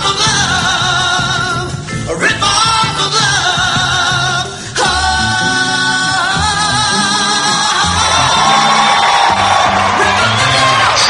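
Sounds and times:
stage-show music: 0.0 - 11.0
audience cheering and whooping: 7.4 - 11.0.

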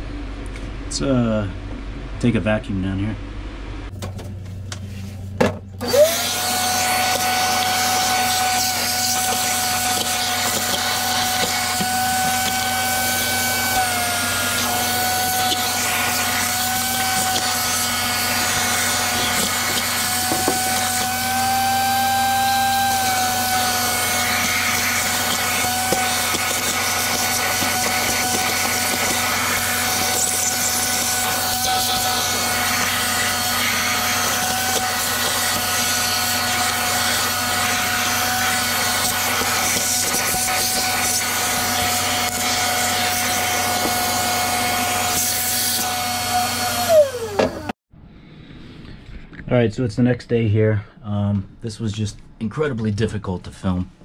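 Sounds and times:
vacuum cleaner motor whine: 5.4 - 47.8.

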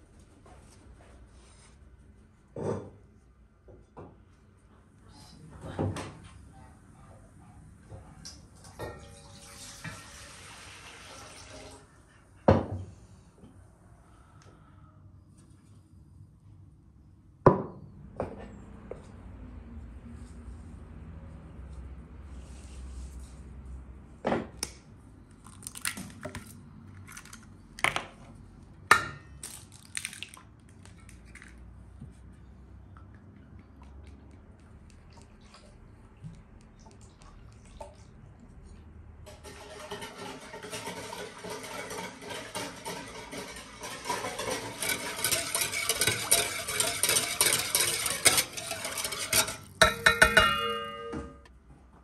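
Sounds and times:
water pouring into a bowl: 9.0 - 11.9
eggshells cracking: 29.4 - 30.4.

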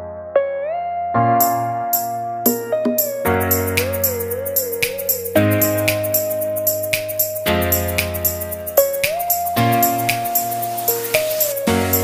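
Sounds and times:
gentle instrumental music: 0.0 - 12.0.

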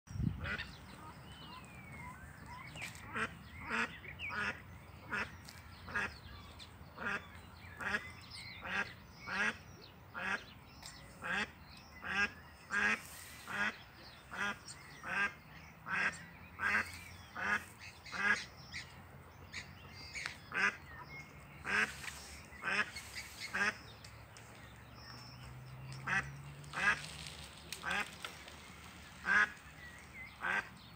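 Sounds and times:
duck quacking: 29.2 - 29.6, 30.4 - 30.7.

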